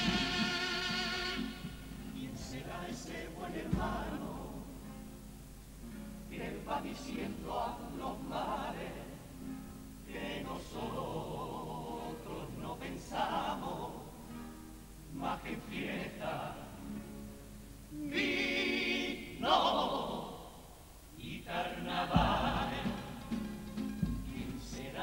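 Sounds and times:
choir singing: 0.0s - 5.0s, 6.2s - 14.5s, 15.1s - 17.2s, 17.9s - 25.0s
guitar accompaniment: 0.0s - 7.5s, 22.1s - 25.0s.

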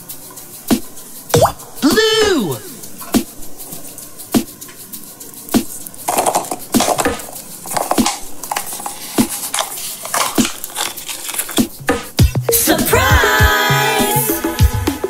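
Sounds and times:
plastic egg clicking and knocking: 4.4s - 12.2s
plastic halves scraping: 5.5s - 12.2s.

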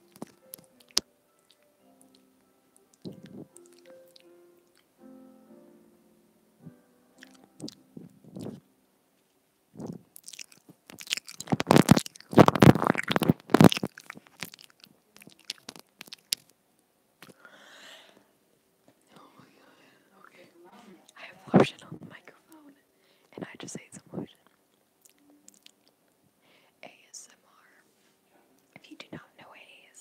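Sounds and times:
mouth sounds on microphone: 3.0s - 4.0s, 6.6s - 8.6s, 9.8s - 10.1s, 11.3s - 14.0s, 21.0s - 22.2s.

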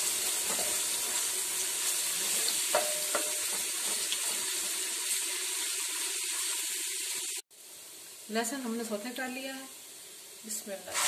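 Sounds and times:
garlic sizzling in a pan: 0.0s - 11.0s
spoon knocking metal pan: 2.7s - 4.0s.

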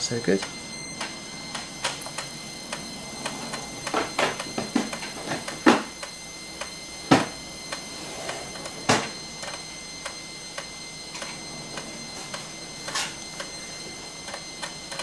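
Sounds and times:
disk drive clunks: 0.0s - 15.0s
floppy disk drive clicking: 14.2s - 15.0s.

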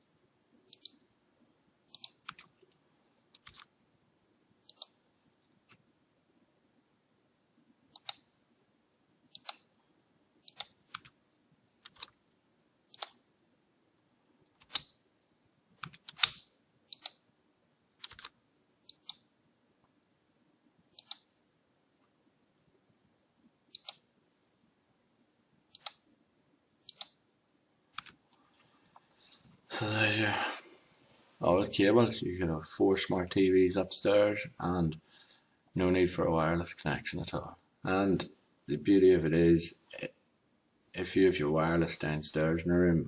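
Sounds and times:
computer mouse clicking: 0.7s - 1.0s, 1.9s - 3.7s, 4.6s - 5.0s, 7.9s - 8.3s, 9.3s - 9.7s, 10.4s - 11.2s, 11.8s - 12.2s, 12.9s - 13.2s, 14.5s - 15.0s, 15.8s - 17.2s, 18.0s - 19.3s, 20.9s - 21.3s, 23.7s - 24.1s, 25.7s - 26.1s, 26.8s - 27.2s, 27.9s - 28.4s.

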